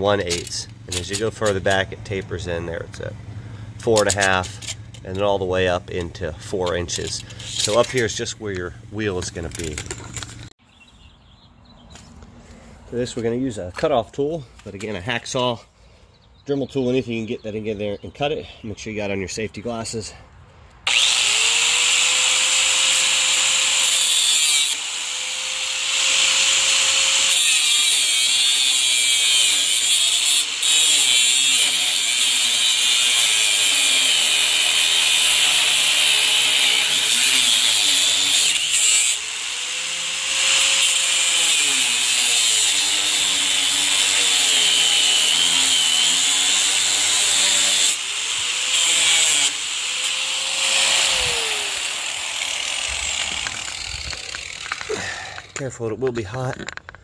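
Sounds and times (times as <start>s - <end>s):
angle grinder cutting metal: 0.0s - 3.1s, 3.7s - 10.6s, 20.9s - 55.7s
grinder motor whine: 20.9s - 27.4s, 32.4s - 55.5s.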